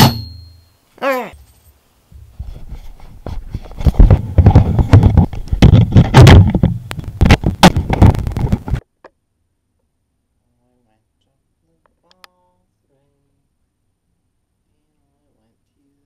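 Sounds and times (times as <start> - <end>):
microphone handling knocks and rustling: 2.1 - 8.8.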